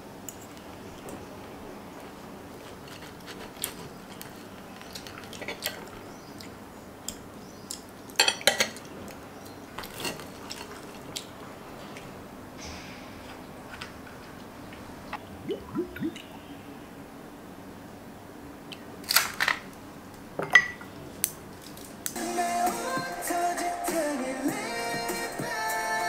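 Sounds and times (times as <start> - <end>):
cutlery clinking on plate: 8.2 - 8.9.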